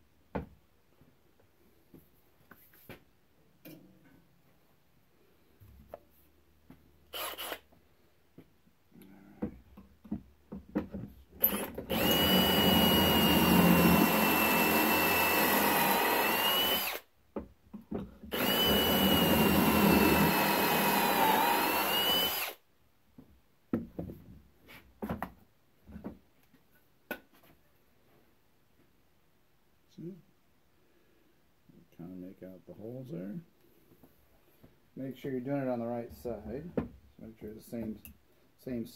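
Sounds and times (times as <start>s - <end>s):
cordless drill whining: 7.1s - 7.7s, 11.4s - 17.1s, 18.3s - 22.6s.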